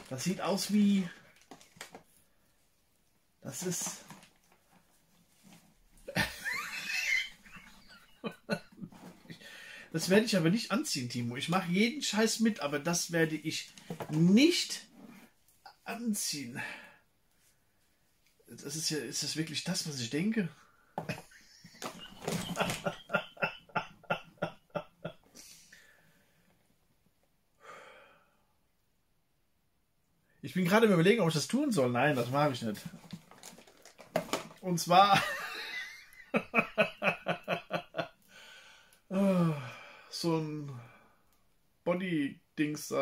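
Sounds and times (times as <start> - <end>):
man laughing: 6.1 - 9.1, 21.0 - 25.2, 35.1 - 38.1
breathy exhale: 38.3 - 40.1.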